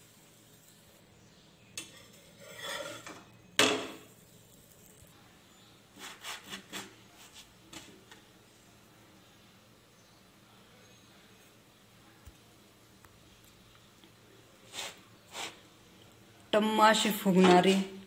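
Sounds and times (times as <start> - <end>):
kitchenware scraping metal pan: 1.8 - 4.0.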